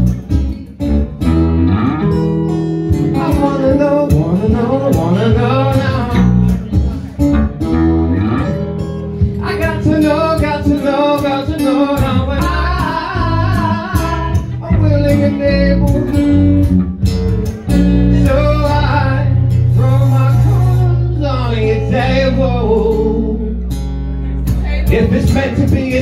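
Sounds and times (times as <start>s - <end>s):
bass: 0.0s - 26.0s
strummed acoustic guitar: 0.0s - 26.0s
man singing: 2.9s - 7.8s, 9.2s - 16.8s, 17.5s - 23.7s, 24.4s - 26.0s.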